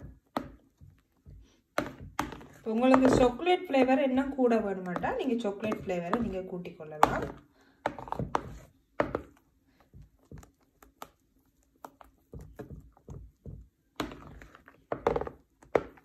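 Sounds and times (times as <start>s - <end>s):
spatula scraping and knocking bowl: 0.0s - 16.0s.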